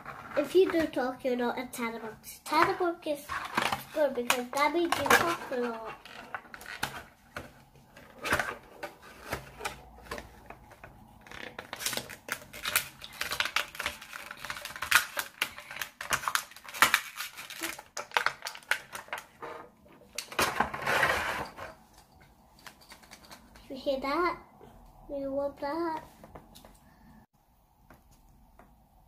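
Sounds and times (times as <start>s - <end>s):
plastic bag crinkling: 11.3s - 19.3s.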